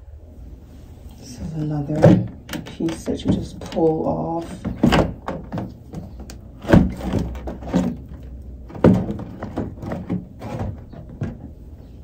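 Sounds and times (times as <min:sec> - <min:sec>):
sharp knocks on plastic: 0:04.6 - 0:11.4.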